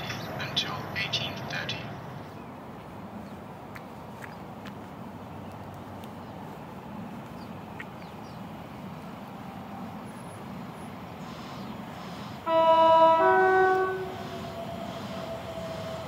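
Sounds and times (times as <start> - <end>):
faint background rumble: 0.0 - 9.3
train two-tone horn: 12.4 - 16.0.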